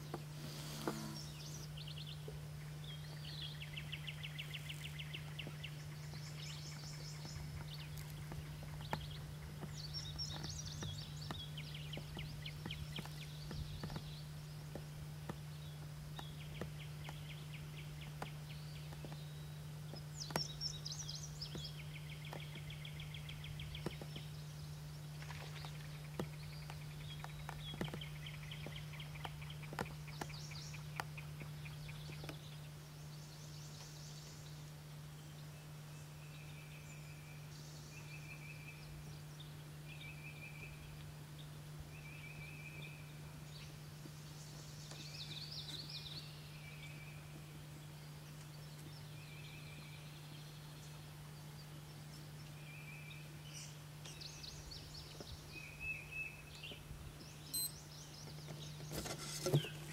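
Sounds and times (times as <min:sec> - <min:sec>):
steady low hum: 0:00.0 - 0:59.9
songbird singing with trill: 0:00.9 - 0:59.0.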